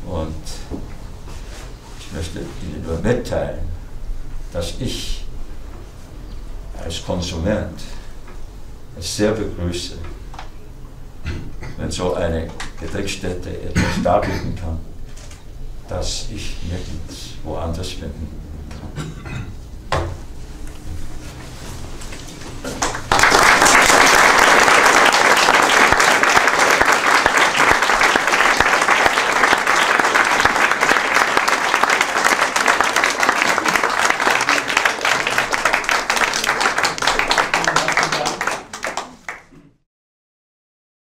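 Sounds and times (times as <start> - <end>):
audience applauding: 22.6 - 39.5.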